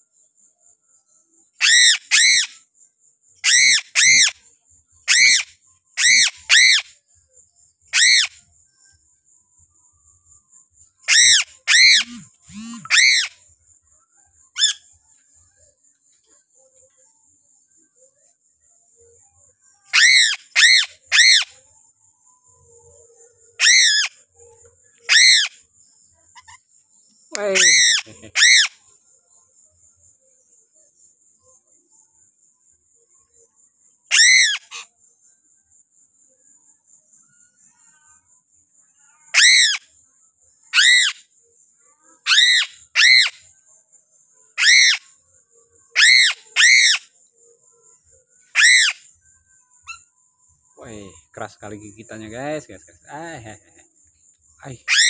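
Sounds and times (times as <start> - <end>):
crow squawking: 11.1 - 13.3, 27.6 - 28.7, 48.6 - 49.0
crow giving harsh calls: 27.6 - 28.7.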